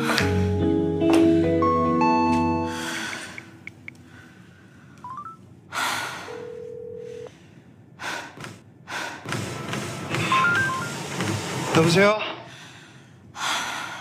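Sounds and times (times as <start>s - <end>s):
keypad rising beeps: 5.0s - 5.4s, 10.3s - 11.0s
heavy gasping breaths: 7.0s - 10.2s, 12.4s - 14.0s.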